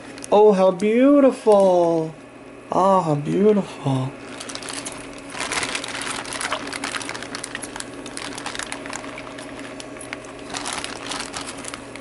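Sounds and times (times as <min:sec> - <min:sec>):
steady low hum: 0:00.0 - 0:12.0
water sloshing and trickling: 0:04.3 - 0:11.8.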